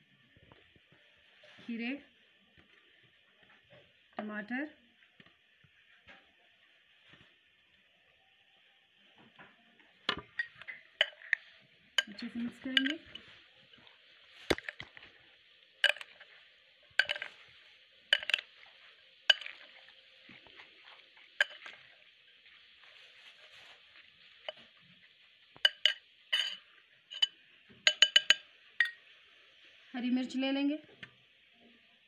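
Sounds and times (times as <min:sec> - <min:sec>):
spoon clinking against a bowl: 0:10.3 - 0:11.4, 0:12.0 - 0:12.2, 0:15.8 - 0:16.2, 0:17.0 - 0:17.3, 0:18.1 - 0:18.5, 0:19.3 - 0:19.6, 0:21.4 - 0:21.9, 0:25.6 - 0:29.0.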